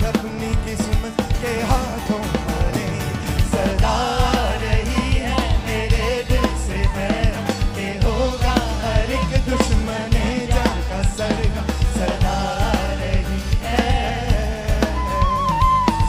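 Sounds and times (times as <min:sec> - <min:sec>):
bass guitar: 0:00.0 - 0:16.0
drums: 0:00.0 - 0:16.0
electric guitar: 0:00.0 - 0:16.0
people singing into microphones: 0:00.0 - 0:16.0.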